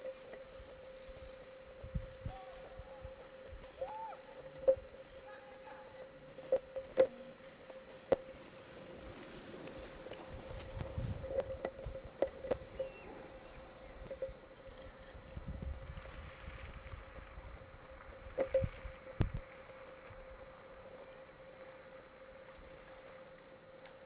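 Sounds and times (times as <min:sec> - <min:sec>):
wind rumbling on microphone: 0:00.0 - 0:05.1, 0:08.8 - 0:20.5
faint steady hum: 0:00.0 - 0:24.0.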